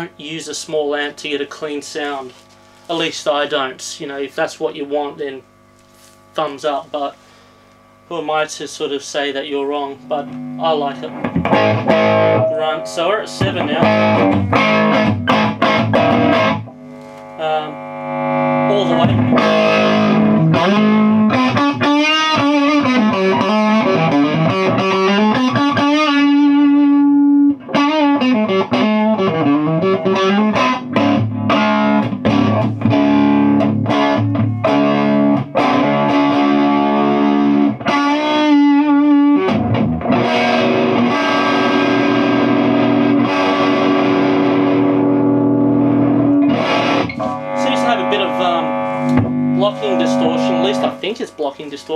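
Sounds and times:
overdriven electric guitar: 9.9 - 51.2.

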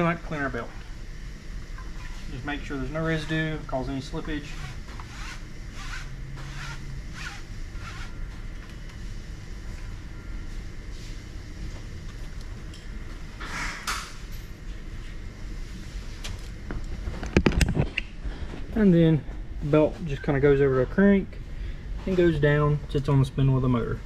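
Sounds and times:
low workshop noise: 0.0 - 24.0
cloth rag rubbing a belt: 4.5 - 8.2.

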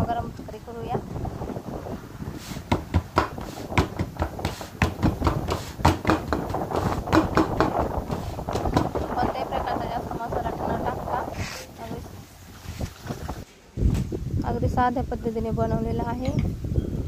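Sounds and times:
hands slapping dough: 2.7 - 9.0.

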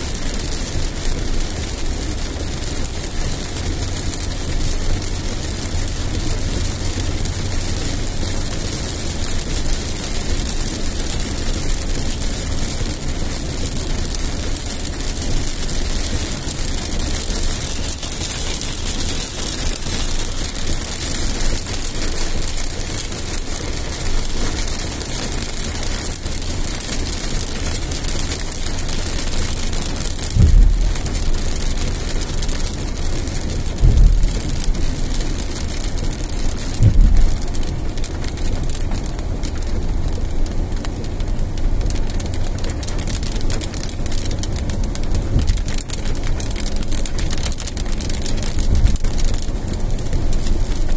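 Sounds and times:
car rumbling: 0.0 - 50.9
rain and wet tyres hissing: 0.0 - 50.9
dull thumps: 30.3 - 31.2, 36.8 - 37.5.

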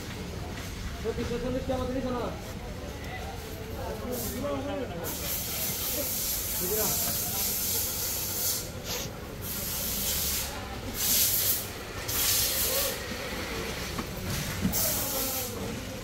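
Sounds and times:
hissing bursts: 5.0 - 13.0.

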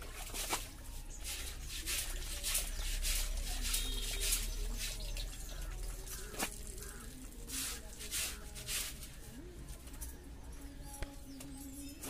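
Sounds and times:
hands scrubbing with soap: 0.0 - 9.2.

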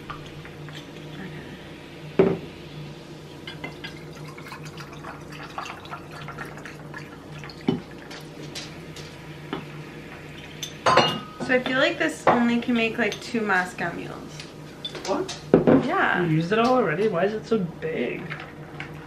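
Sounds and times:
fizzing and crackling: 3.2 - 9.2
ginger beer pouring over ice: 3.5 - 8.1.

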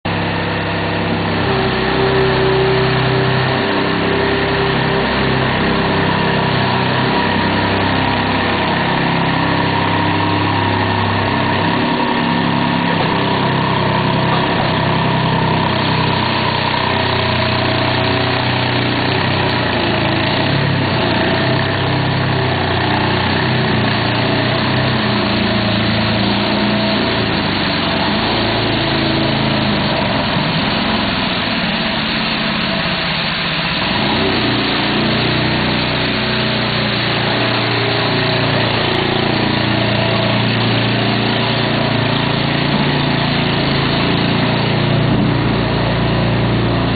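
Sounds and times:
farm machine engine drone: 0.0 - 46.9
noisy hiss: 0.1 - 46.9.

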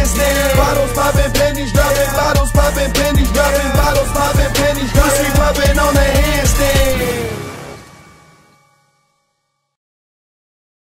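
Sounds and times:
deep bass drum hits: 0.0 - 7.8
hip hop track: 0.0 - 8.6.

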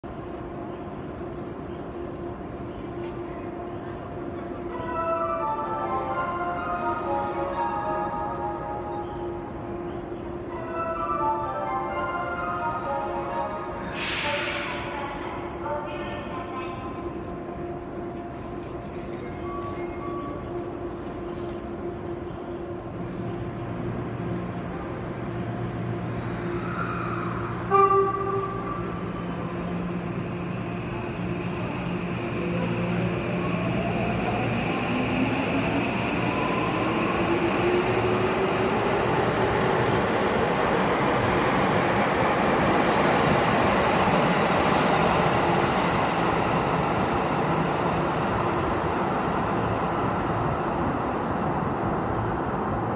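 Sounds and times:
train humming: 0.1 - 52.9
train horn toot: 27.6 - 28.9.

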